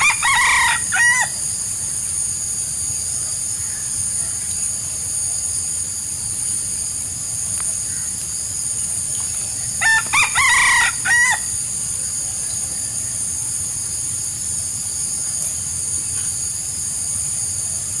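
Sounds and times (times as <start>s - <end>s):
rooster crowing: 0.0s - 1.4s, 3.6s - 4.6s, 9.8s - 11.6s
steady high hiss: 0.0s - 18.0s.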